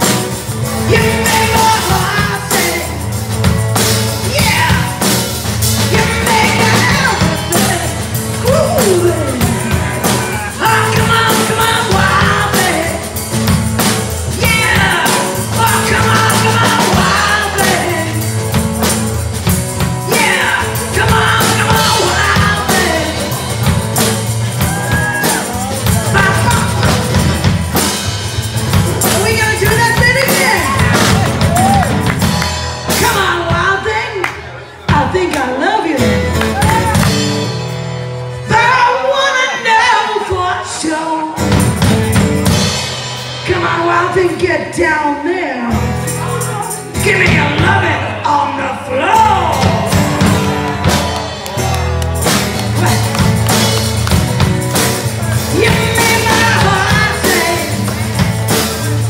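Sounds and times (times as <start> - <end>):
rock band playing live: 0.0 - 59.0
person singing and shouting: 4.2 - 5.2, 5.8 - 13.1, 14.3 - 18.3, 20.0 - 23.4, 24.6 - 27.2, 28.9 - 32.0, 43.5 - 51.9.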